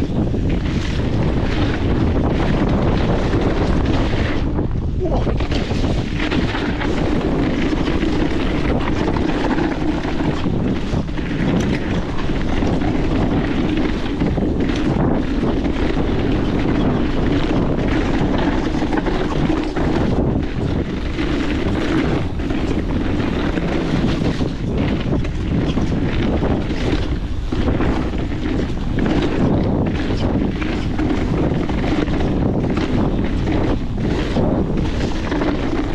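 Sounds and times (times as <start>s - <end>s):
bike knocking and rattling: 0.0s - 35.9s
bike tyres on dirt trail: 0.0s - 35.9s
wind on microphone: 0.0s - 35.9s.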